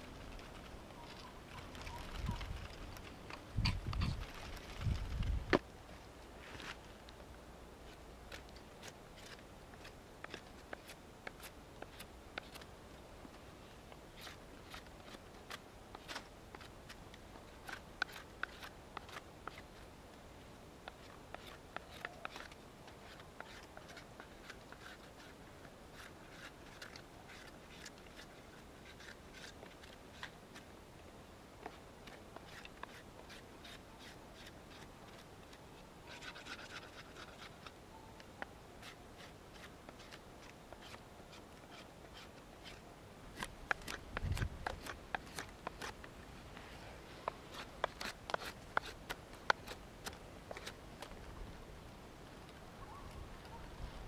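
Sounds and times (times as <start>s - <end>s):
knife scraping wood: 7.8s - 12.7s, 14.1s - 19.8s, 20.9s - 30.7s, 31.6s - 37.8s, 38.8s - 46.0s, 47.2s - 51.1s.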